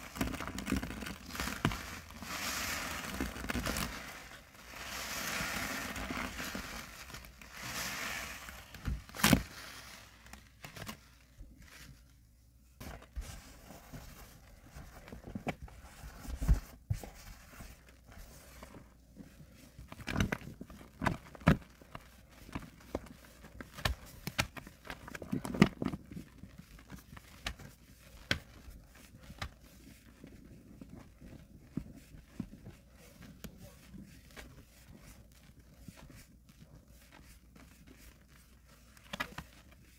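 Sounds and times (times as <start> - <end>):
soapy sponge squelching: 0.0 - 8.8.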